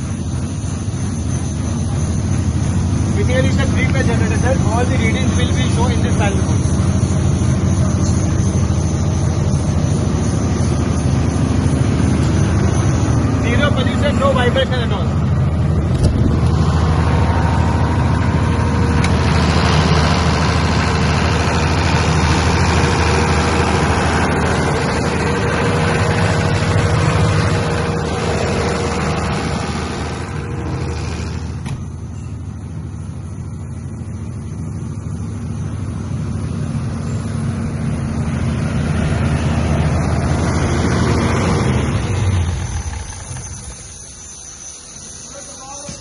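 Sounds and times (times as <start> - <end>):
diesel generator running: 0.0 - 46.0.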